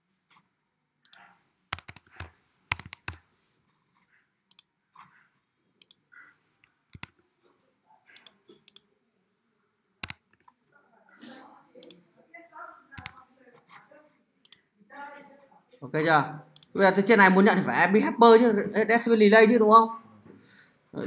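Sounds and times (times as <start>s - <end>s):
mouse clicks: 1.0s - 3.2s, 4.5s - 4.7s, 5.8s - 6.0s, 6.6s - 7.2s, 8.1s - 8.9s, 10.0s - 10.6s, 13.0s - 13.2s, 14.4s - 14.6s
keyboard keystrokes: 1.1s - 3.2s, 6.9s - 7.1s, 10.0s - 10.5s, 13.0s - 13.2s.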